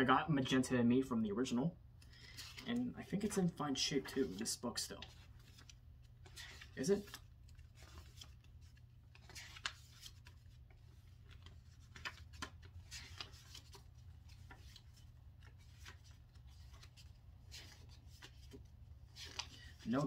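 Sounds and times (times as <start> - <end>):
book pages flipping: 4.0 - 20.0.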